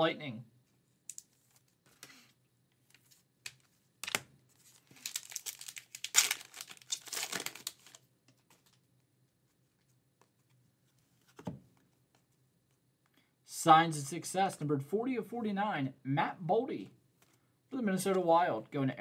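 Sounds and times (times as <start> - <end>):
foil wrapper crinkling: 4.6 - 8.0.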